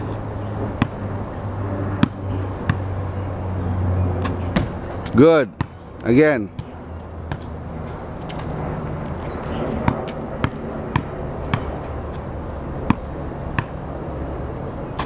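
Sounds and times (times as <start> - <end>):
basketball bouncing: 2.0 - 2.9, 4.2 - 4.8, 6.6 - 7.5, 9.8 - 11.9, 12.8 - 13.8.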